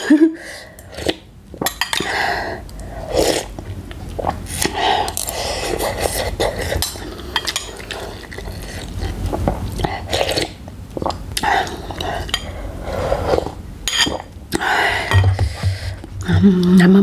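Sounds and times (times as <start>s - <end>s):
person slurping broth: 2.0s - 3.6s, 4.2s - 16.0s.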